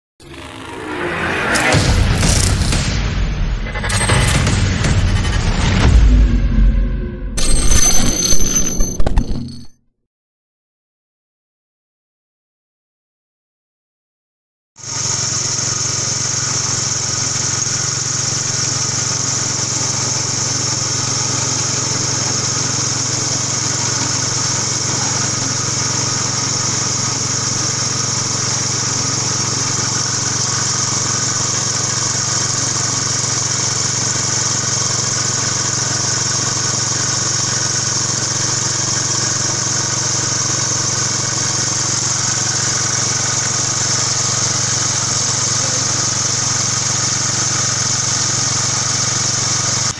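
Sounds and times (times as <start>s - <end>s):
meat grinder motor droning: 14.8s - 49.9s.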